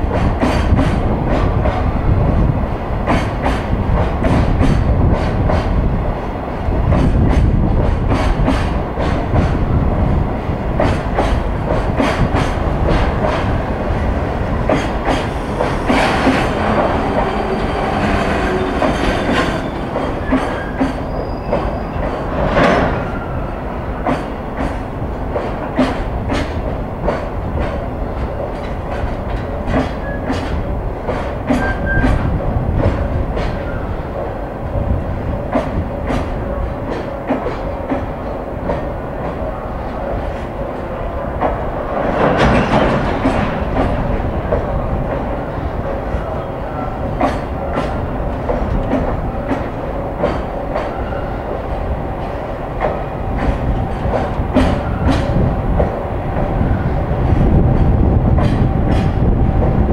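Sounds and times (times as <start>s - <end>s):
freight train rumble: 0.0s - 59.9s
high wheel squeal: 17.0s - 22.0s, 31.6s - 32.1s
wheel clacks over rail joints: 24.0s - 33.8s, 41.4s - 45.3s, 47.0s - 51.0s, 52.2s - 56.5s.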